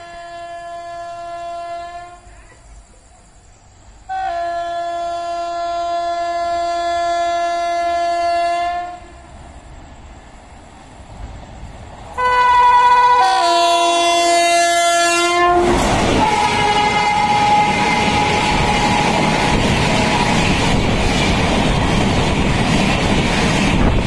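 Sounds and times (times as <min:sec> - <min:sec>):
train horn blasts: 0:00.0 - 0:02.3, 0:04.1 - 0:09.2, 0:12.2 - 0:20.7
rumble of approaching train: 0:00.0 - 0:24.0.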